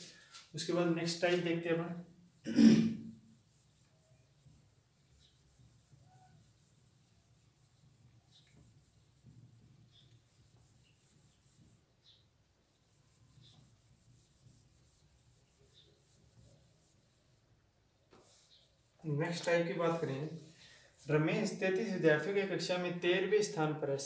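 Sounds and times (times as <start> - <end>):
eraser rubbing on whiteboard: 3.2 - 17.5, 18.1 - 22.3.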